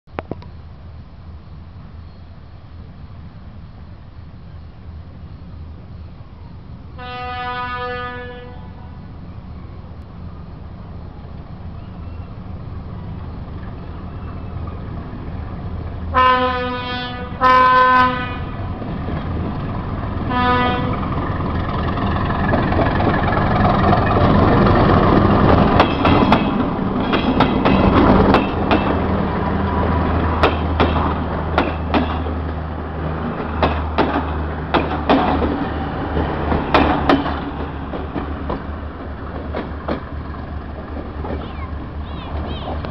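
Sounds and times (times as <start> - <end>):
locomotive engine: 0.2 - 42.9
locomotive horn blasts: 7.0 - 9.1, 16.1 - 18.7, 20.3 - 21.0
train wheels clacking: 20.8 - 29.2, 30.2 - 32.5, 33.2 - 42.9.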